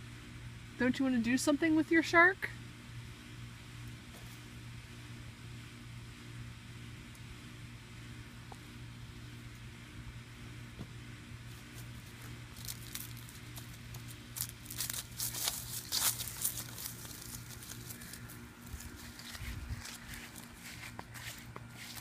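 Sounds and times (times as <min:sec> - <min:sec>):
steady low hum: 0:00.0 - 0:22.0
footsteps on dry leaves: 0:11.4 - 0:22.0
inflatable vinyl toy crinkling: 0:11.6 - 0:22.0.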